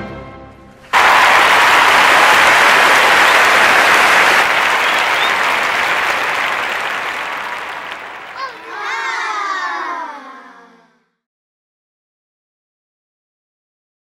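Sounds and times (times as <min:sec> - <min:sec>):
crowd applauding: 0:00.9 - 0:09.9.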